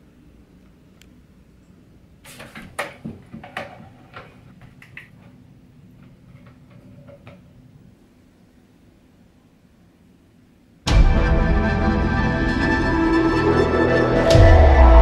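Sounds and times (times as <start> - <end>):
handling knocks and clicks: 2.3 - 7.6.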